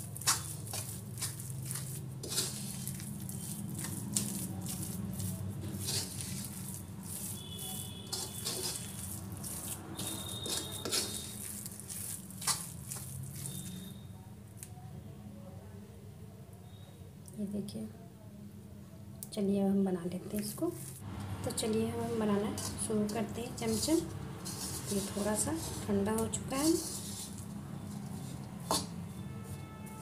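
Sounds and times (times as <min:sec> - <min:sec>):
hand rubbing mixture in pan: 0:00.0 - 0:14.0, 0:20.4 - 0:30.0
metal spoon scraping a pan: 0:00.0 - 0:14.0, 0:22.4 - 0:30.0.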